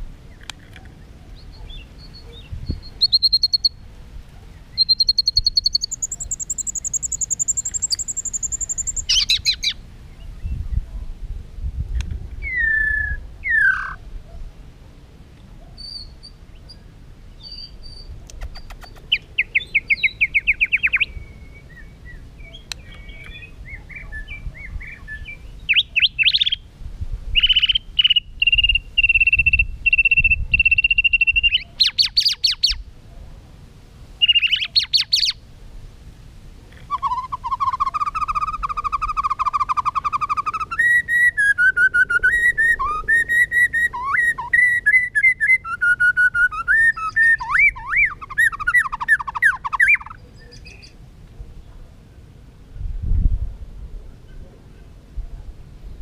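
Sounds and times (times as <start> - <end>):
bird singing whistles: 1.4 - 3.8, 4.7 - 9.8, 12.4 - 14.0, 15.8 - 16.8, 17.4 - 26.6, 27.4 - 32.8, 34.2 - 35.4, 36.9 - 50.9.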